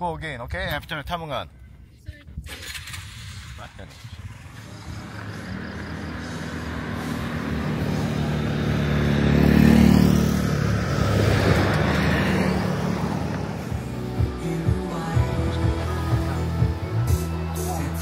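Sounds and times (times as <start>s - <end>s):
pickup truck passing: 2.9s - 18.0s
motorcycle passing: 4.0s - 17.6s.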